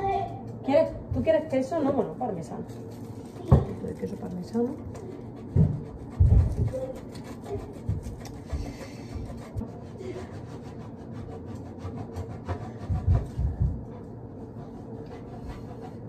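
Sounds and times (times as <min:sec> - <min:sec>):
cheese grating on metal grater: 0:02.7 - 0:12.4.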